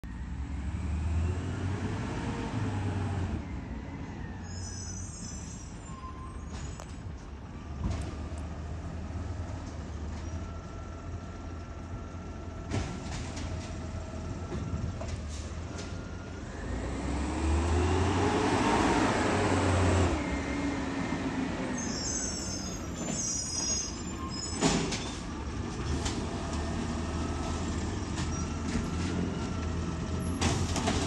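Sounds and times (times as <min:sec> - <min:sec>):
garbage truck engine humming: 0:07.0 - 0:31.0.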